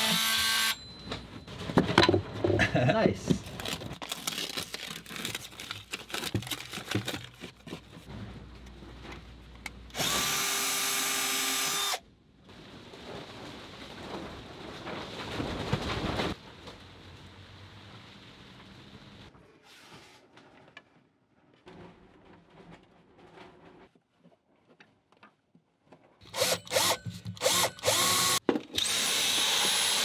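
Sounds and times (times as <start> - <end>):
power drill running: 0.0 - 0.8, 9.9 - 12.0, 26.2 - 30.0
masking tape peeling: 3.5 - 7.7
tool handling noise: 4.6 - 8.1, 26.2 - 28.9.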